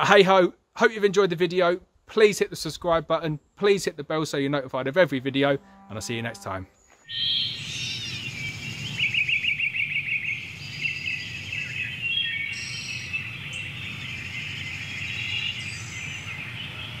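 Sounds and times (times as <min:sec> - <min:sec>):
birds singing and chirping: 0:06.7 - 0:17.0.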